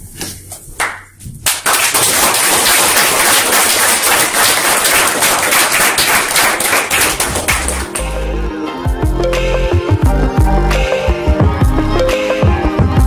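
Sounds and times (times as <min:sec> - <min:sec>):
audience applauding: 0:01.5 - 0:08.2.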